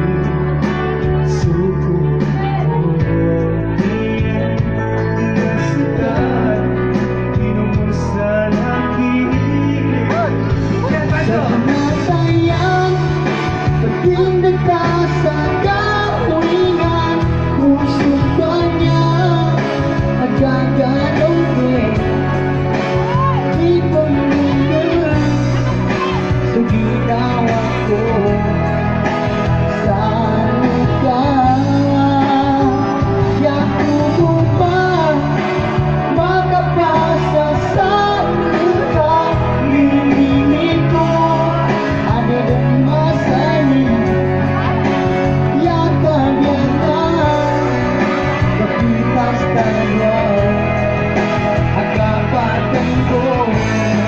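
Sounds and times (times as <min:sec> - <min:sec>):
backing music with bass line: 0:00.0 - 0:54.0
electronic keyboard with steady beat: 0:00.0 - 0:54.0
man singing into microphone: 0:00.0 - 0:54.0.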